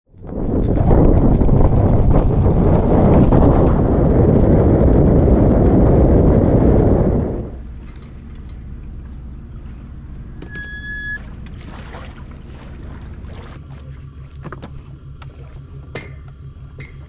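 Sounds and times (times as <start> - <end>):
low steady hum: 0.1 - 17.0
wind and road noise: 0.1 - 17.0
high electronic beep: 10.4 - 11.2.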